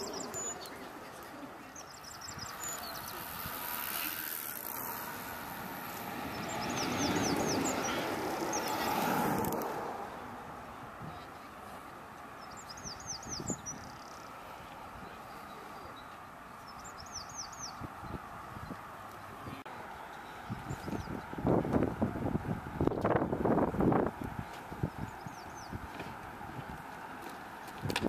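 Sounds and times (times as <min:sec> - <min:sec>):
bird singing descending notes: 0:00.0 - 0:03.6, 0:04.8 - 0:09.4, 0:15.2 - 0:19.5
trike tyres and air rushing past: 0:02.2 - 0:10.7.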